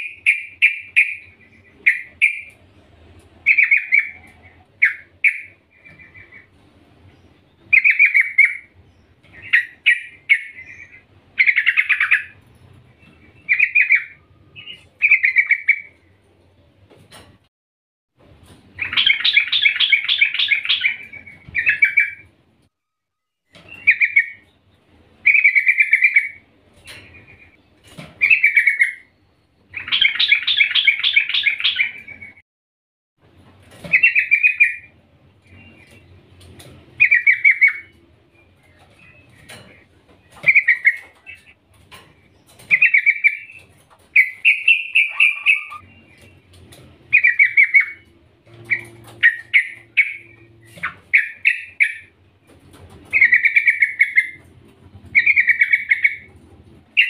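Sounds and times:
bird chattering calls: 0:18.8 - 0:22.2, 0:42.7 - 0:46.3, 0:47.1 - 0:52.2, 0:53.1 - 0:54.5, 0:55.2 - 0:56.3.

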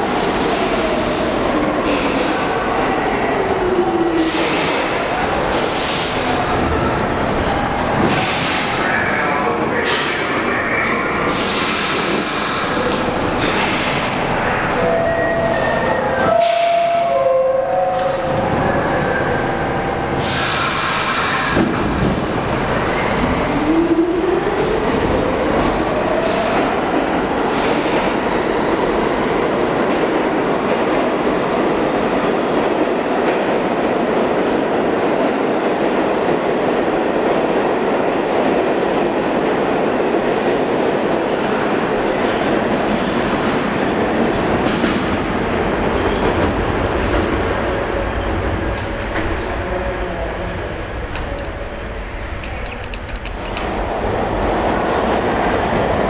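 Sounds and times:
air brake hiss: 0:11.3 - 0:12.6, 0:20.2 - 0:21.5
train wheels clattering on rails: 0:11.3 - 0:14.4.

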